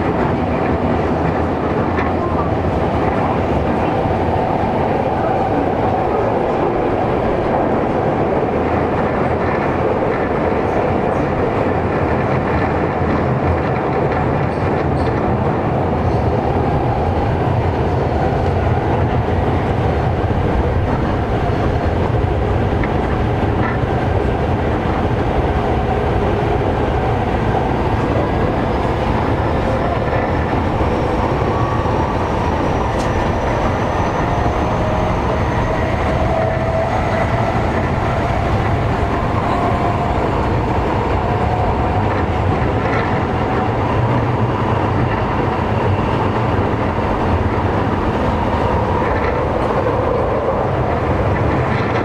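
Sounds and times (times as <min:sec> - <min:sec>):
train wheels rumbling on rail: 0:00.0 - 0:52.0.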